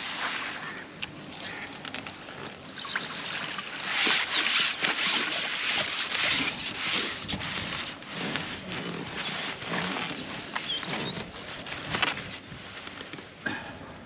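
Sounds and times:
water splashing off a net: 2.8s - 7.9s
rubbing and handling noise: 3.8s - 13.4s.

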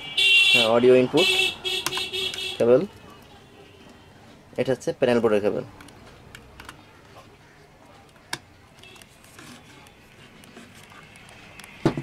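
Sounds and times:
cable connectors clicking: 1.8s - 2.4s.

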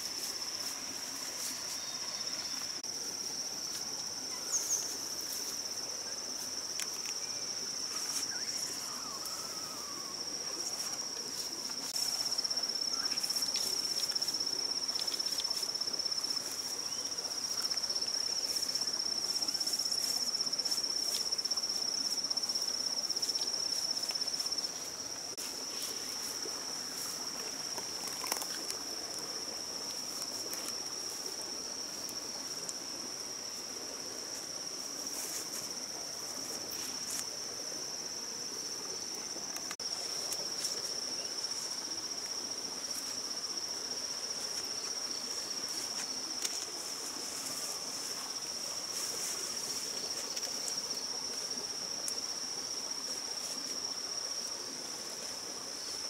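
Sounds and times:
fern fronds rustling: 0.0s - 7.2s, 7.9s - 17.7s, 34.3s - 37.3s, 44.3s - 51.0s
insects droning: 0.0s - 56.0s.

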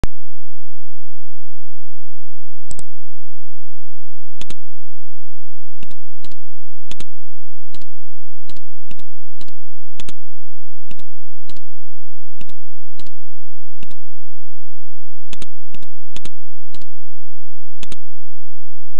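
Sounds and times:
faint steady hum: 0.1s - 18.9s
computer mouse clicking: 4.4s - 4.6s, 5.8s - 7.1s, 8.5s - 10.2s, 10.9s - 11.6s, 12.4s - 13.1s, 13.8s - 14.0s, 15.3s - 16.9s, 17.8s - 18.0s.

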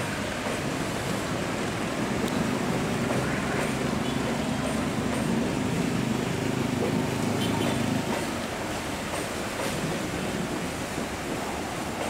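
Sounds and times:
traffic on wet road: 0.0s - 12.0s
train rumbling along track: 0.0s - 12.0s.

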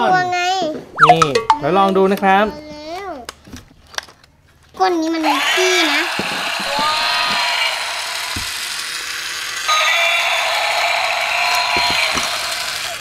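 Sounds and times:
toy motor and gears whirring: 5.2s - 13.0s.

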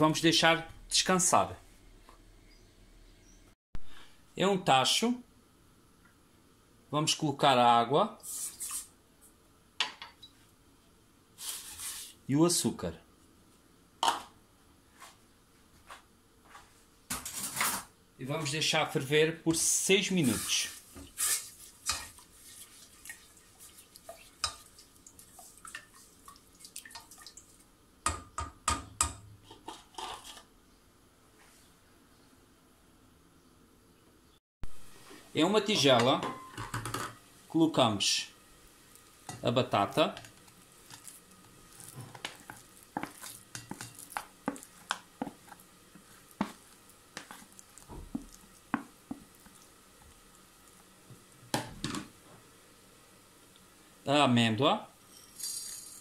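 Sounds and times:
spoon scraping a metal pot: 40.8s - 46.6s.

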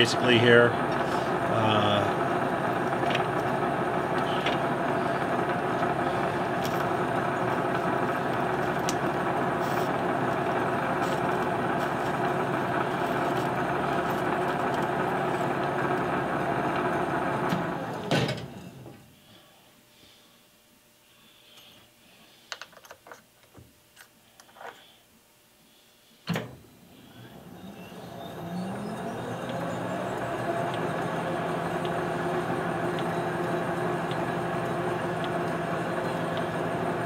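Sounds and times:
lathe spinning down: 0.0s - 18.1s, 27.0s - 37.0s
lathe gear train whine: 0.0s - 19.0s, 26.7s - 37.0s.

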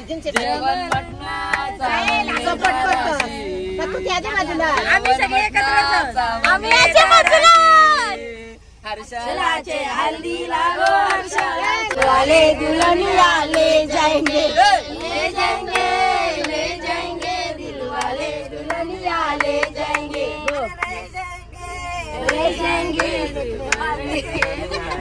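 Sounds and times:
group of people singing: 0.0s - 25.0s
hands clapping to beat: 22.2s - 24.6s.

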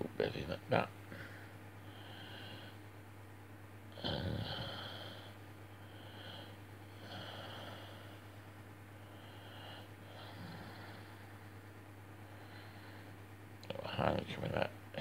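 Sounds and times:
low hum: 0.0s - 15.0s
quiet breathing: 1.1s - 3.0s, 4.1s - 13.9s.

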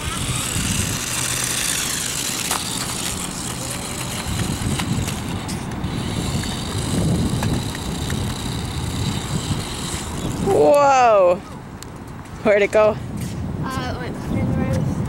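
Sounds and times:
rc car motor whining: 0.0s - 10.7s.

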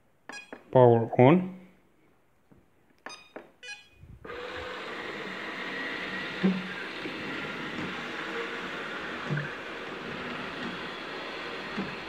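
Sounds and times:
robot vacuum motor and brushes: 4.3s - 12.0s.

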